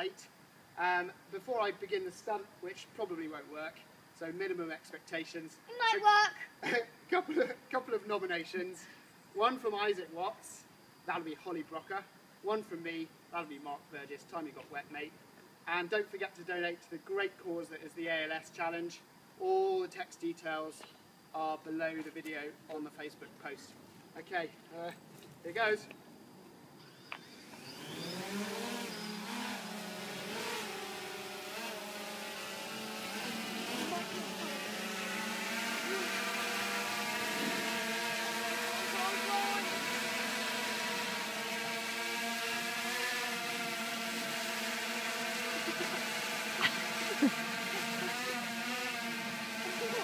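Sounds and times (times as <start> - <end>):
drone rotors buzzing: 26.8 - 50.0.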